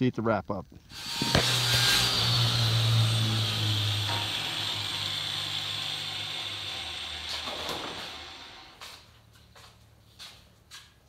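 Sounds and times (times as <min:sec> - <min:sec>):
electric motor running down: 0:00.9 - 0:09.0.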